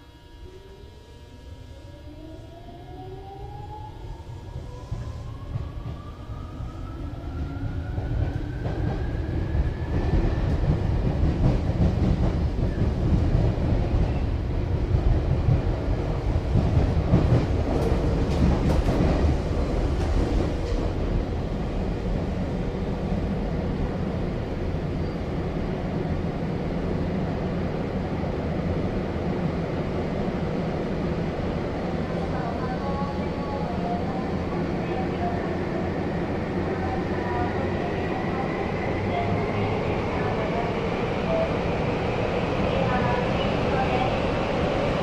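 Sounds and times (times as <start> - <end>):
electric train motor whine: 0.0 - 5.4.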